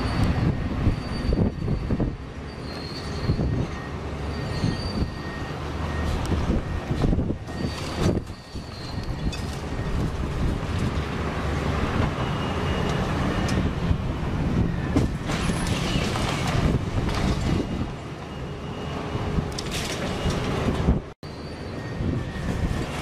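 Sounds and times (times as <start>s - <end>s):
faint squeals: 0.0s - 5.5s
crane mechanical rumble: 0.0s - 23.0s.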